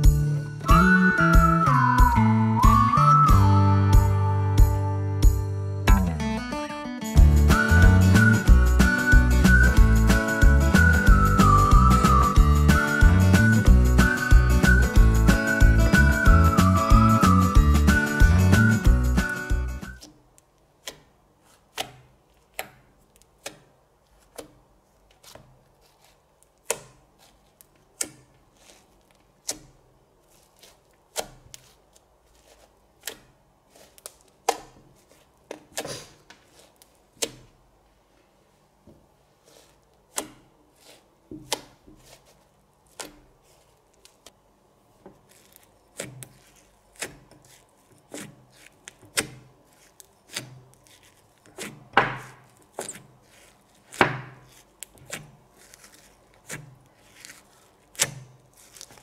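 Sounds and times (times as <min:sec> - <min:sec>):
sticky clicks of pressed slime: 0:20.0 - 0:31.8, 0:33.0 - 0:37.6, 0:40.0 - 0:40.5, 0:45.2 - 0:59.0.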